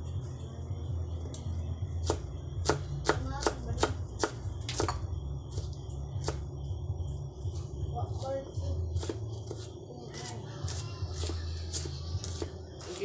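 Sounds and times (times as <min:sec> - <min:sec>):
low hum: 0:00.0 - 0:03.0, 0:03.6 - 0:09.5
knife chopping on wooden board: 0:02.0 - 0:05.0, 0:09.0 - 0:09.7.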